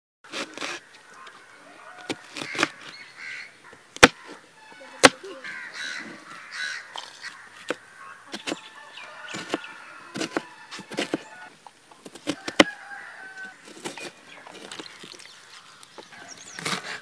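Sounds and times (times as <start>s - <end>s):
knife chopping on cutting board: 8.3s - 8.6s, 10.2s - 11.2s.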